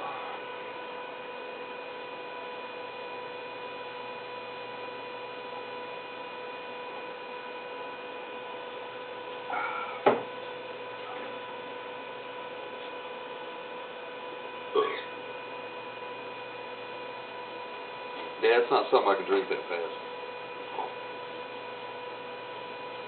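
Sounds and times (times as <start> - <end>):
electrical hum: 0.0 - 23.0
voiced breath: 9.5 - 10.2
glass bottle set down knock: 10.0 - 10.3.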